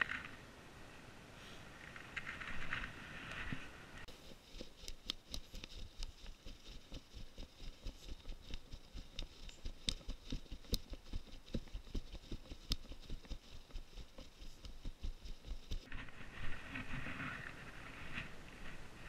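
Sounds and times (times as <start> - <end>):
camera knocking and rubbing: 4.1 - 16.0
footsteps on dry grass: 4.1 - 16.6.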